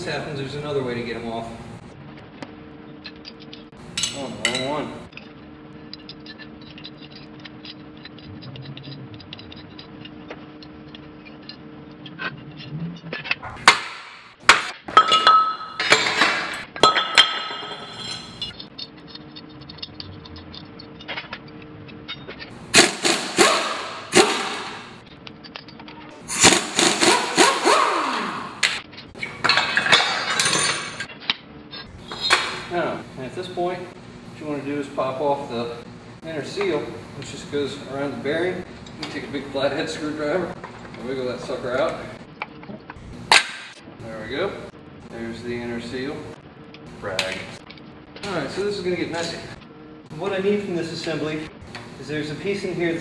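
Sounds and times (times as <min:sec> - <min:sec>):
metal wrenches clanking: 0:03.0 - 0:24.8, 0:28.9 - 0:32.6.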